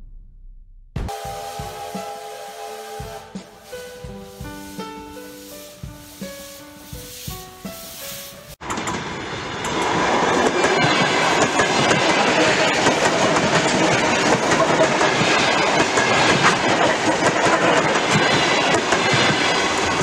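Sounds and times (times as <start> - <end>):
intro music tones: 0.0 - 8.6
electric train passing: 1.1 - 20.0
wheels clicking over rail joints: 8.6 - 20.0.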